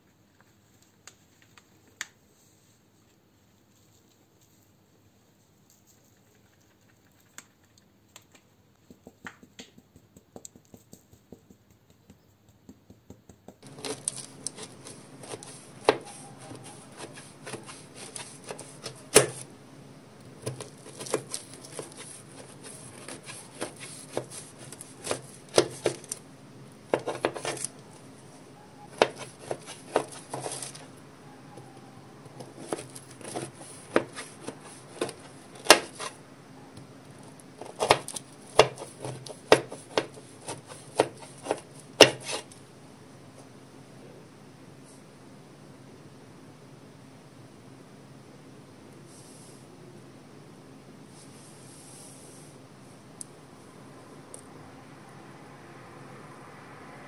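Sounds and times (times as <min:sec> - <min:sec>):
knife cutting crumbly tart crust: 0:13.6 - 0:19.5, 0:20.2 - 0:26.2, 0:26.9 - 0:28.0, 0:28.9 - 0:30.9, 0:32.2 - 0:36.2, 0:37.2 - 0:42.6
low steady hum: 0:13.6 - 0:57.0.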